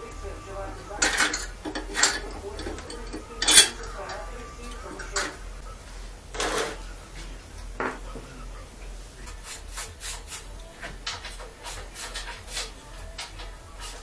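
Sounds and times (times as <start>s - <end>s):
engine parts clattering on workbench: 1.0s - 4.2s.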